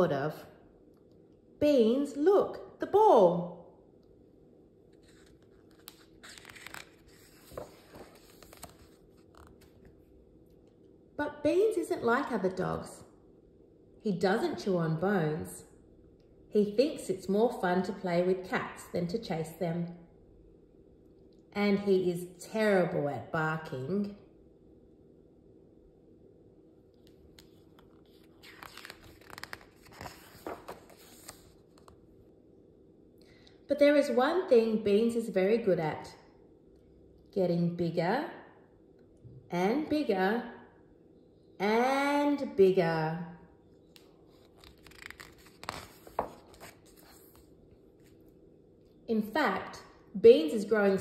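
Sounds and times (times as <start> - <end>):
book page turning: 4.9 - 10.1, 27.0 - 32.0, 43.8 - 48.4.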